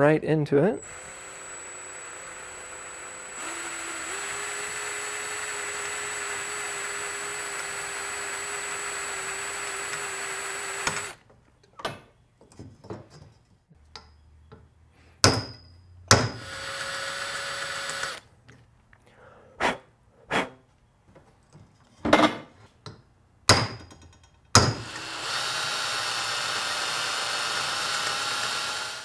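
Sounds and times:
electric drill boring metal: 0.8 - 11.2, 16.4 - 18.2, 24.7 - 29.0
metallic knocks and clinks: 23.7 - 24.6.

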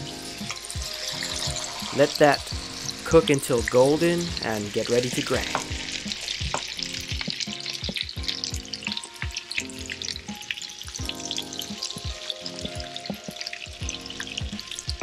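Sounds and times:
fish patties sizzling in pan: 0.0 - 15.0
wooden spatula knocking: 5.4 - 8.1.

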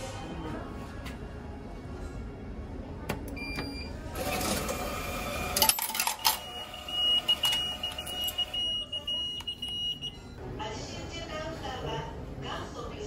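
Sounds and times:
coins clattering into metal tray: 5.6 - 6.4.

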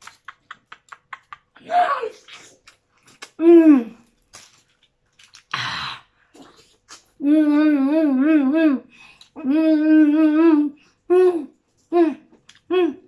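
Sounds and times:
woman humming while chewing: 6.4 - 13.0.

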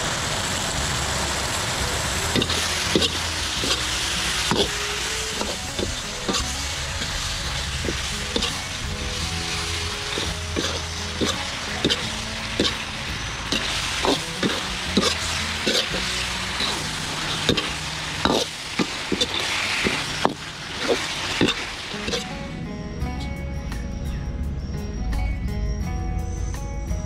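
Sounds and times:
food sizzling in a wok: 0.0 - 22.4
metal ladle clinking and scraping pan: 2.3 - 22.3.

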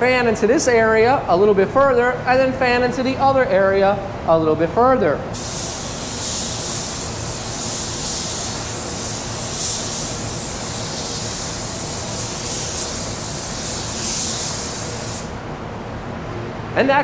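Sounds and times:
spray gun hissing: 5.4 - 15.4.

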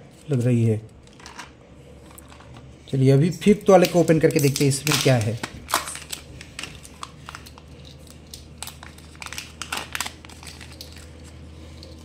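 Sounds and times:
packaging crinkling and clicking: 3.7 - 12.0.

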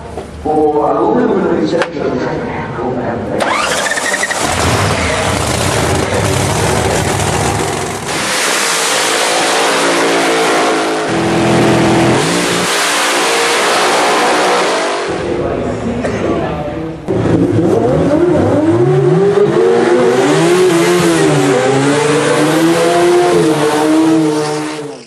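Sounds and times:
drag racing car engine revving: 3.4 - 16.2, 17.0 - 25.0.

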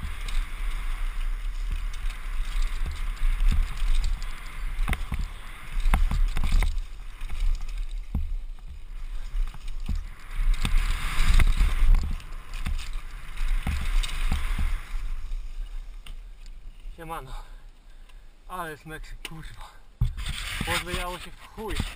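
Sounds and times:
bike knocks and rattles on bumps: 0.0 - 15.2, 20.0 - 21.9.

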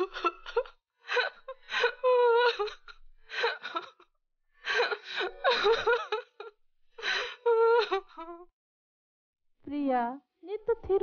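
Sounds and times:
woman wailing cry: 0.0 - 3.9, 4.7 - 8.4
woman sobbing: 0.0 - 4.0, 4.6 - 8.4.

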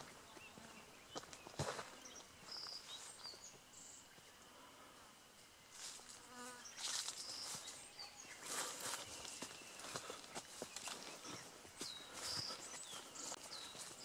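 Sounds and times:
footsteps on dirt trail: 0.0 - 4.3, 5.8 - 14.0
fly buzzing: 4.8 - 7.2.

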